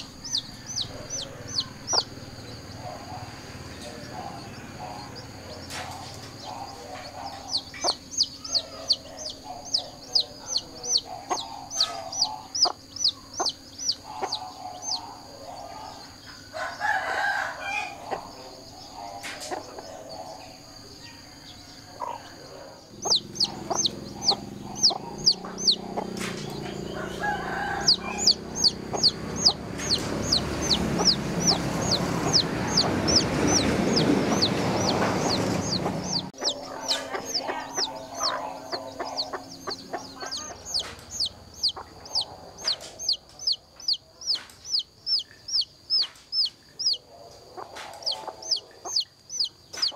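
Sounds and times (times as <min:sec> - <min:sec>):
chicken clucking: 0:00.0 - 0:49.9
chicks peeping: 0:00.0 - 0:49.9
rushing noise with low hum: 0:27.8 - 0:36.4.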